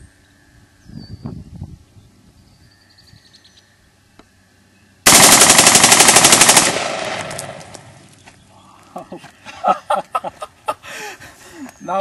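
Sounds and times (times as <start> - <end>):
automatic rifle burst: 5.1 - 7.9
gunshot echo: 5.1 - 8.0.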